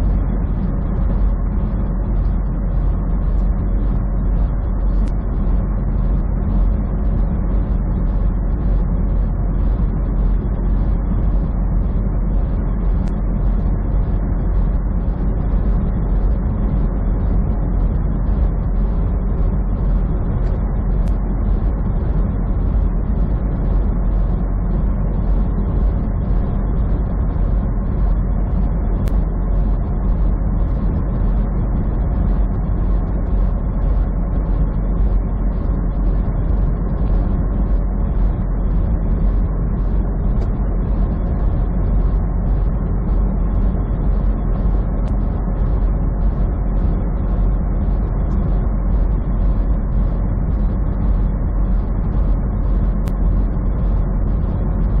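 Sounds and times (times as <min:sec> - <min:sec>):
truck engine drone: 0:00.0 - 0:55.0.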